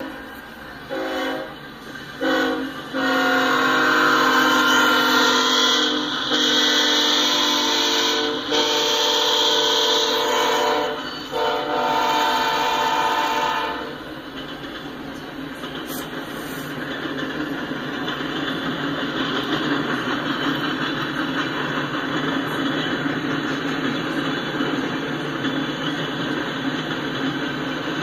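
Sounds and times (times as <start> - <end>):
train running noise: 0.0 - 28.0
locomotive air horn blasts: 0.9 - 1.6, 2.2 - 14.0.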